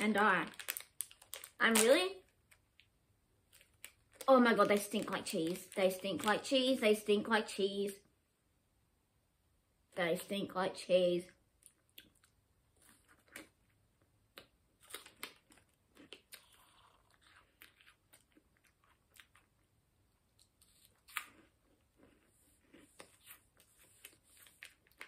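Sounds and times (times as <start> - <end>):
crunching and chewing snack: 11.6 - 25.0.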